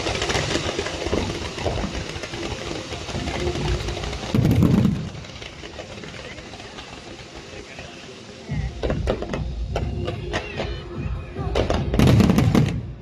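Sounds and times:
fireworks crackling and rumbling: 0.0 - 13.0
fireworks boom: 3.2 - 5.7, 8.5 - 13.0.

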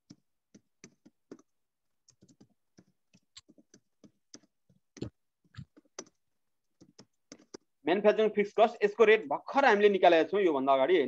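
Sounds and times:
computer keyboard keystrokes: 6.8 - 7.7.

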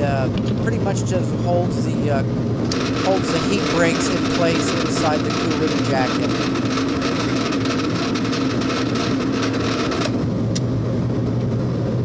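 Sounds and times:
drill press motor hum: 2.4 - 10.2
drill bit cutting metal: 2.7 - 10.1.

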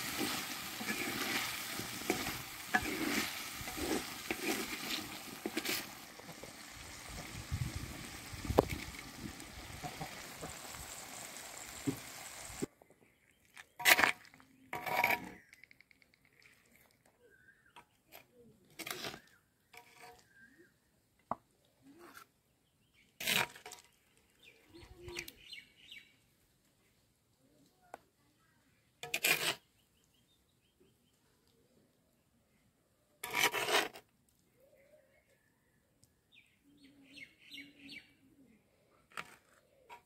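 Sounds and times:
metal spoon scraping clay pot: 0.0 - 7.3, 13.8 - 15.6, 18.7 - 20.3, 29.0 - 29.7, 33.2 - 34.0
curry sizzling in a pot: 0.0 - 12.7.

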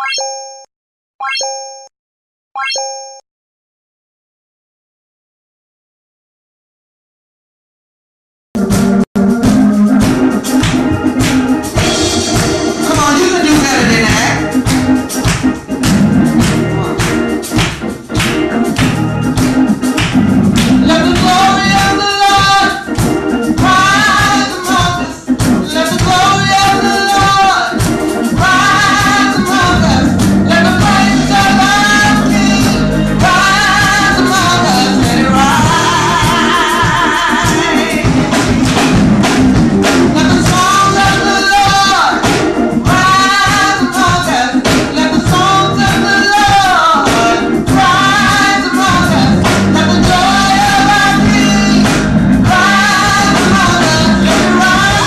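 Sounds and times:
keyboard: 0.0 - 1.9, 2.6 - 3.2, 8.6 - 55.0
drums: 8.6 - 55.0
women singing gospel: 20.8 - 22.8, 23.6 - 38.6, 40.2 - 42.3, 42.9 - 55.0.

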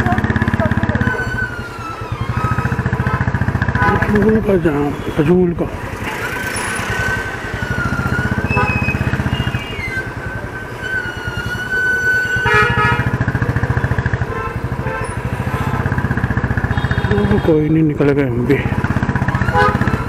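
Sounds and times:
vehicle horn: 0.0 - 4.6, 6.2 - 15.8, 16.4 - 17.9, 19.2 - 20.0.

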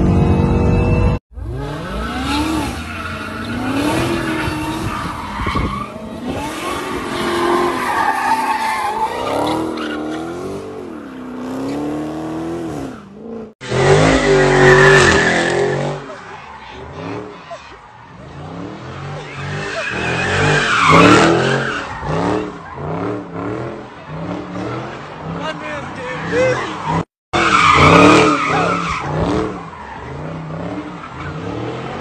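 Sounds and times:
tyres squealing: 2.8 - 10.3.

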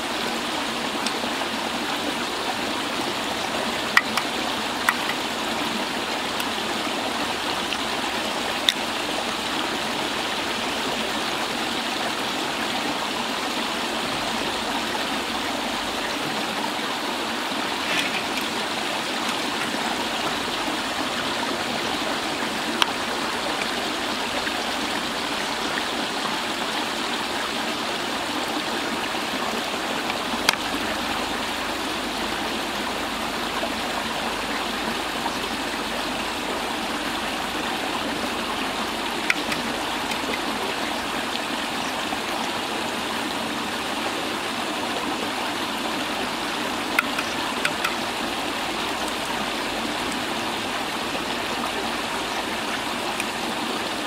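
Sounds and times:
water pouring from pipe: 2.2 - 10.9, 17.6 - 25.4, 37.4 - 41.8, 46.1 - 50.2.

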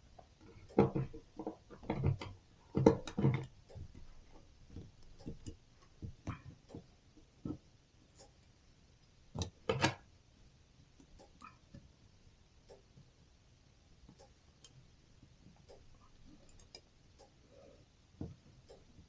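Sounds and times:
steel wire clicking and rattling: 0.1 - 8.4.

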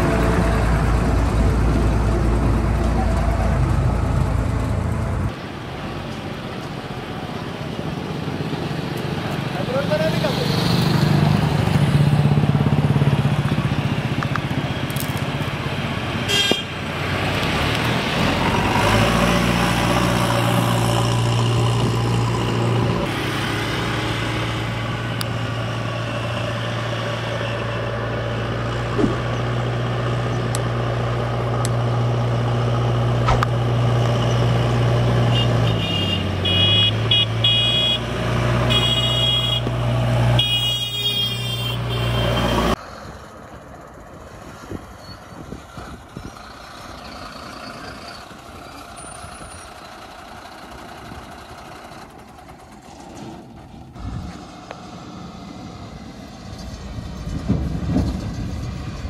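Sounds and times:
motorcycles passing: 7.3 - 27.9
vehicle horn toots: 16.3 - 16.7, 35.3 - 42.8
diesel engine running: 45.8 - 59.0.

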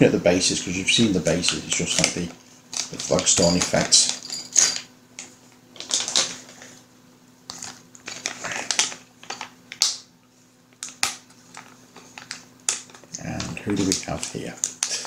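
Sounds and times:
packaging rustling: 5.8 - 6.7, 7.5 - 9.9, 10.8 - 15.0.

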